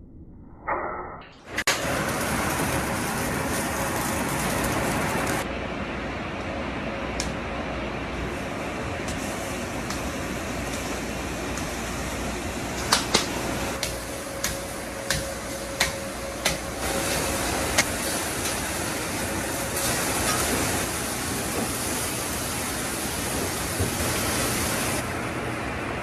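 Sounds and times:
patties sizzling on griddle: 0:01.6 - 0:05.4, 0:08.2 - 0:25.0
spatula clacking on griddle: 0:12.8 - 0:16.6.

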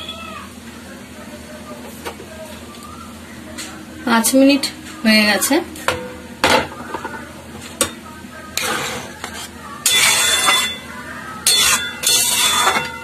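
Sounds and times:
spatula scraping metal pan: 0:08.6 - 0:10.8, 0:11.4 - 0:13.0.

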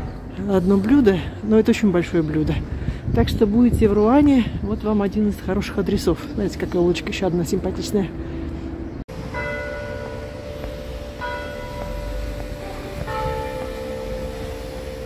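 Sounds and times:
church bell tolling: 0:09.1 - 0:15.0.

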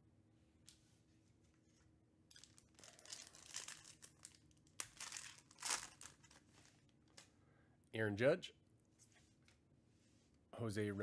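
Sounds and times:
foil wrapper crinkling and tearing: 0:02.3 - 0:06.9.

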